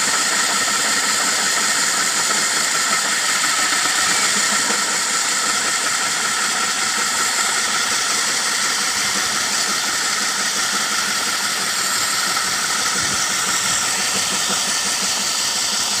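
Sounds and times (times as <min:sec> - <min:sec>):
core drill grinding into concrete: 0:00.0 - 0:16.0.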